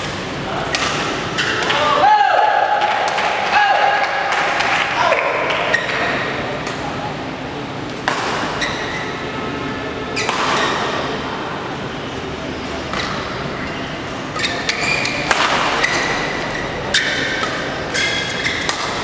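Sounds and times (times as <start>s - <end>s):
crowd chatter: 0.0s - 19.0s
short high squeaks: 8.5s - 9.3s, 13.8s - 18.7s.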